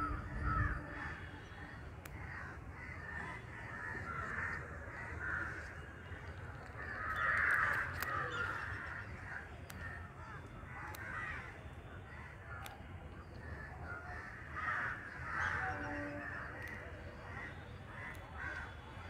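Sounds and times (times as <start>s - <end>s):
crows cawing: 0.0s - 5.8s, 6.8s - 12.6s, 13.4s - 18.8s
faint sharp clicks: 1.9s - 2.3s, 6.2s - 11.2s, 12.5s - 13.5s, 16.6s - 16.9s, 18.0s - 18.6s.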